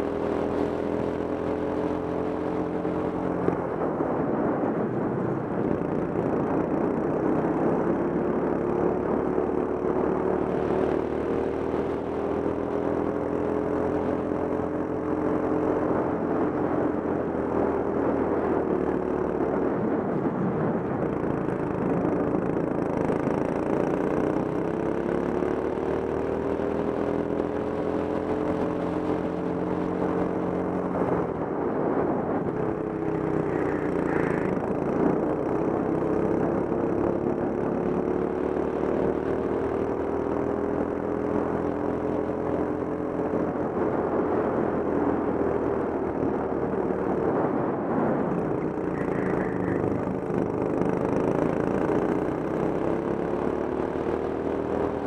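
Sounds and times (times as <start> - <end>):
go-kart engine revving: 32.9 - 40.1, 48.3 - 55.0.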